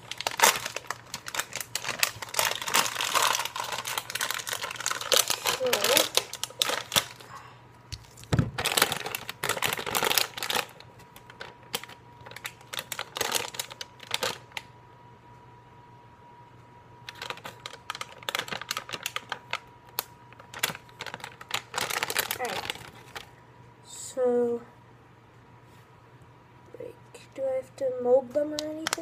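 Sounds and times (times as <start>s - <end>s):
wrapper crinkling and tearing: 0.0s - 7.3s, 7.9s - 14.7s, 17.0s - 23.3s.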